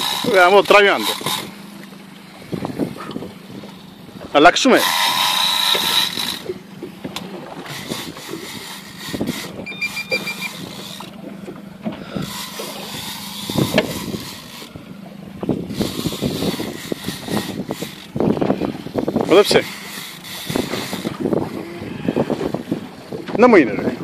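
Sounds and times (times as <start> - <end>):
boat engine running: 0.0 - 24.0
high electronic beeps: 9.6 - 10.6.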